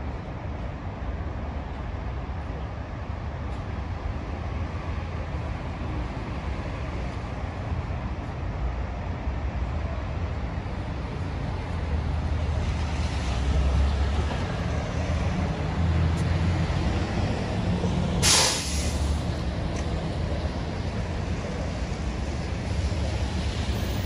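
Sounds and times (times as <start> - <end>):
bus engine rumbling: 0.0 - 24.0
air brake hiss: 18.2 - 19.2.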